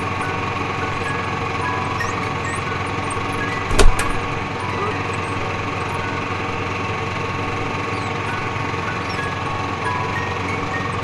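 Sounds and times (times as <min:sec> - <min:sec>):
mechanical drone: 0:00.0 - 0:11.0
sharp knock: 0:03.7 - 0:04.3.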